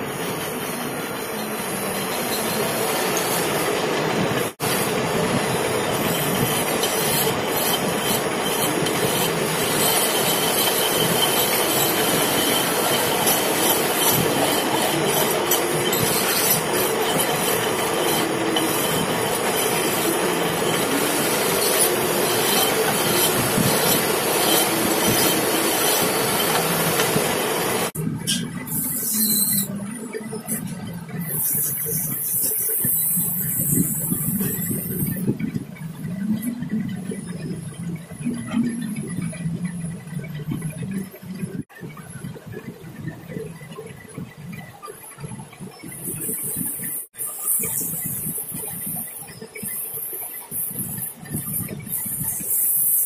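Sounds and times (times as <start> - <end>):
metal lathe turning steel: 5.5 - 38.2.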